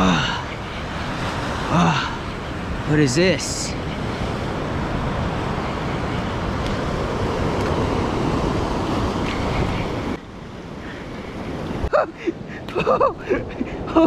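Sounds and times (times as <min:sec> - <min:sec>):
surf at shoreline: 0:00.0 - 0:14.0.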